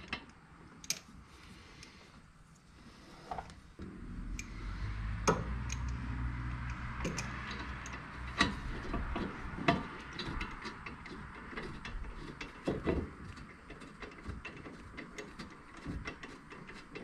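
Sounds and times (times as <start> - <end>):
low steady hum: 0.0 - 17.0
metal clicks and taps: 5.3 - 6.0, 6.6 - 13.0.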